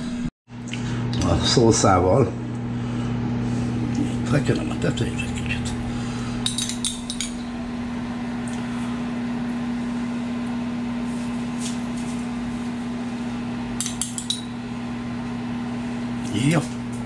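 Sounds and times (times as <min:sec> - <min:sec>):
kitchen appliance humming: 0:00.0 - 0:17.0
utensil clinking against dish: 0:06.4 - 0:07.5.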